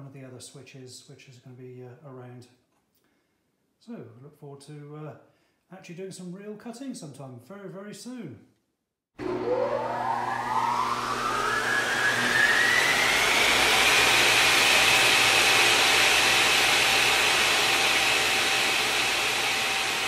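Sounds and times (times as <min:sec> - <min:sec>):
rising whoosh whine: 0:09.2 - 0:14.9.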